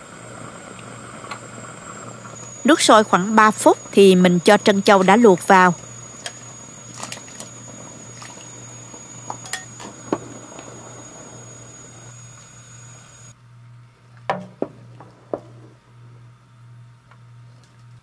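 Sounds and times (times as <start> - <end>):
soup boiling with bubbling hiss: 0.0 - 13.4.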